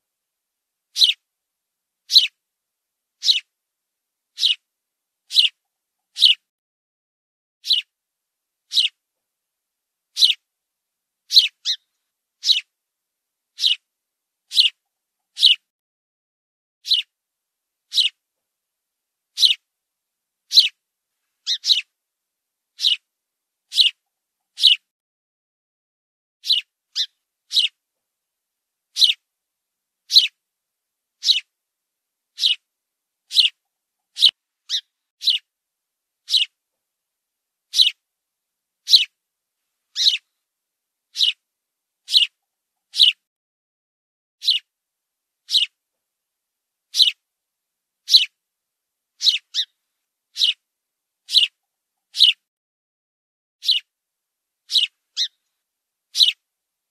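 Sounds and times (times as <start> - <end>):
sparrow chirping: 0.9 - 1.2, 2.1 - 2.4, 3.2 - 3.5, 4.3 - 4.6, 5.3 - 6.4, 7.6 - 7.9, 8.7 - 9.0, 10.1 - 10.4, 11.3 - 12.7, 13.5 - 13.9, 14.5 - 15.6, 16.8 - 17.1, 17.9 - 18.2, 19.3 - 19.6, 20.5 - 20.8, 21.4 - 21.9, 22.8 - 23.1, 23.7 - 24.9, 26.4 - 27.8, 28.9 - 29.2, 30.1 - 30.4, 31.2 - 31.5, 32.3 - 32.7, 33.3 - 35.5, 36.2 - 36.6, 37.7 - 38.0, 38.8 - 39.2, 39.9 - 40.3, 41.1 - 41.4, 42.0 - 43.2, 44.4 - 44.7, 45.4 - 45.8, 46.9 - 47.2, 48.0 - 48.4, 49.2 - 50.6, 51.2 - 52.4, 53.6 - 53.9, 54.7 - 55.4, 56.1 - 56.4.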